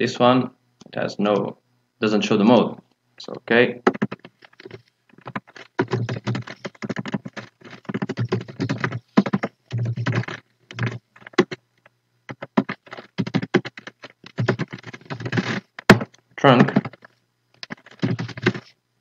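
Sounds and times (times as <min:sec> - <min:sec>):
typing on a computer keyboard: 0:03.9 - 0:11.6, 0:12.3 - 0:18.6.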